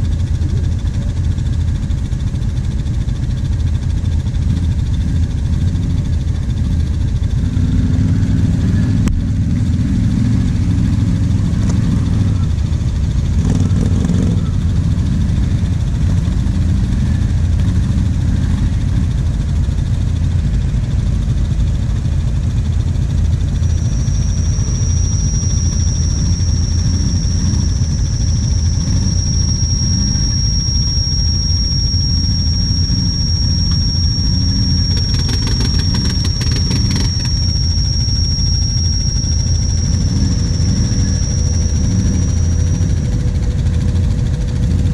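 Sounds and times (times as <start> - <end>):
atv engines running: 0.0 - 44.9
thin high whistle: 23.4 - 44.9.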